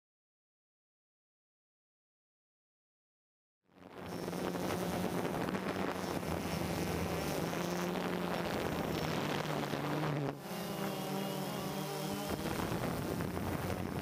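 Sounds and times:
drone propellers buzzing: 3.8 - 14.0
wind noise on microphone: 3.8 - 14.0.

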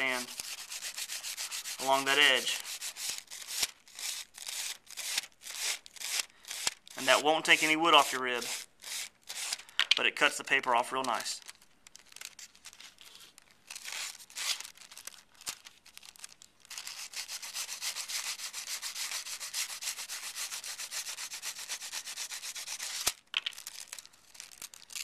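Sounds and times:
emery board rasping on wood: 0.2 - 9.6.

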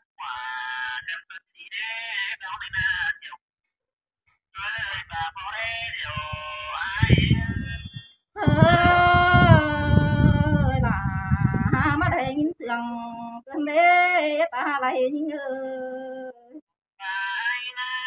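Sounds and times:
low rumble: 6.2 - 12.3
woman singing unaccompanied: 8.4 - 16.6.

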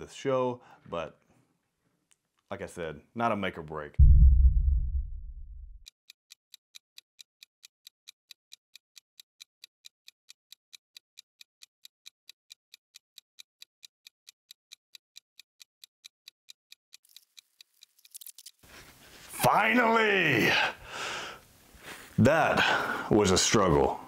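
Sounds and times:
deep booming hit: 4.0 - 5.8
clock ticking: 5.8 - 17.0.

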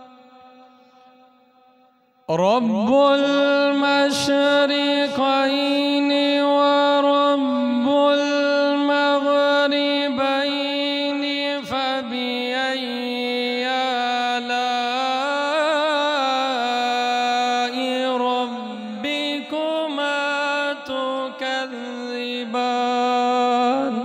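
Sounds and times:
man reciting melodically: 2.3 - 24.0.

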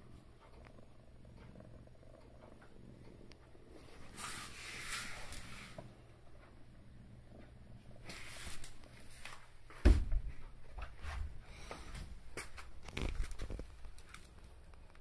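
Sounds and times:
cat purring: 0.0 - 9.2
rustling: 8.0 - 9.6, 10.9 - 14.6.

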